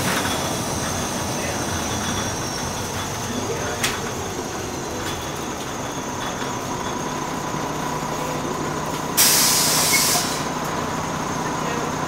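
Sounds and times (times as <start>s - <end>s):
bus engine running: 0.0s - 12.0s
compressed air hiss: 9.2s - 10.5s.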